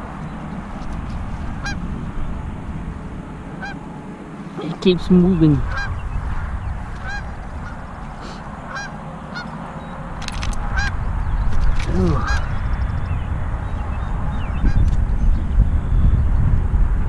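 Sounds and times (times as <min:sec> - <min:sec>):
low rumble: 0:00.0 - 0:08.9, 0:10.0 - 0:17.0
geese honking: 0:01.4 - 0:01.9, 0:03.5 - 0:03.9, 0:04.5 - 0:09.6, 0:10.6 - 0:11.0, 0:12.0 - 0:12.6.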